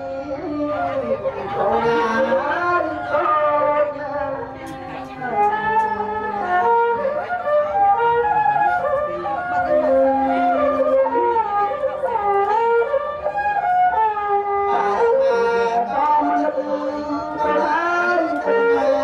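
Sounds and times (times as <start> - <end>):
man singing: 0.0 - 4.6, 14.6 - 19.0
bowed fiddle: 0.0 - 19.0
wind instrument: 0.0 - 19.0.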